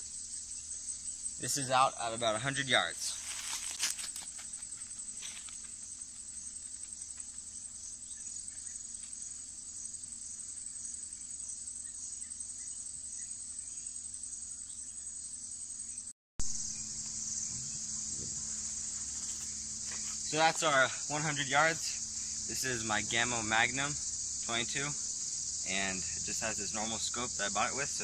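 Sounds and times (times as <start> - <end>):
insects chirring: 0.0 - 28.0.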